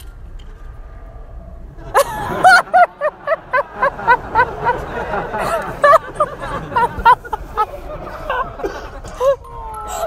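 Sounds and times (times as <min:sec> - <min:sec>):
person laughing hard: 0:01.8 - 0:09.5.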